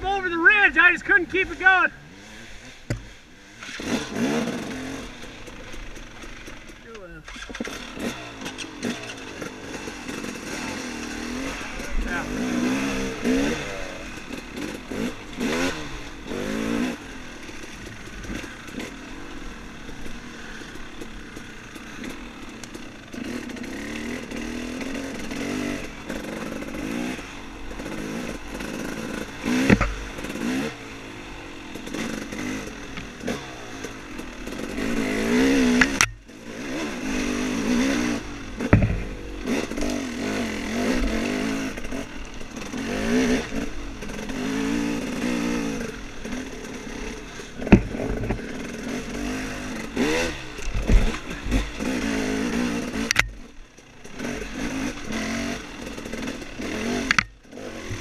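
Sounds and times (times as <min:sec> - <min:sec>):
dirt bike engine revving: 0:00.0 - 0:58.0
bike knocking over rough ground: 0:38.6 - 0:39.2.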